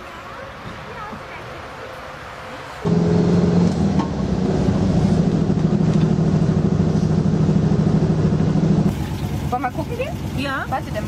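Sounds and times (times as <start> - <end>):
air-cooled engine droning: 2.8 - 11.0.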